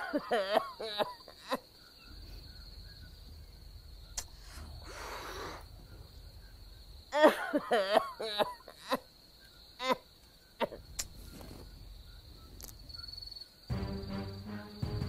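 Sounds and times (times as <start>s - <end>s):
elderly woman coughing: 0.0s - 1.6s, 7.2s - 9.0s
crickets chirring: 0.0s - 15.0s.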